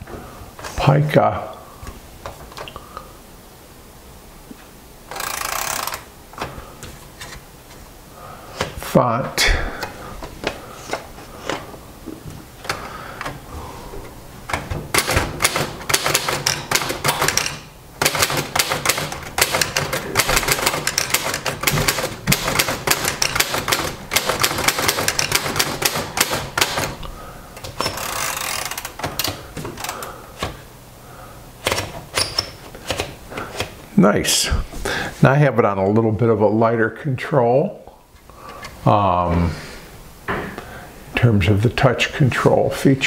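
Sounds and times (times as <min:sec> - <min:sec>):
typewriter keystrokes: 0:14.5 - 0:27.0, 0:31.6 - 0:33.7.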